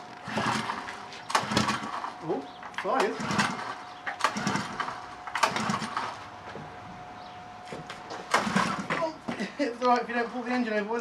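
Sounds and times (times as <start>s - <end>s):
small engine turning over: 0.0s - 6.2s, 8.3s - 9.1s
pull-starter pulls: 0.0s - 6.3s, 8.2s - 9.2s.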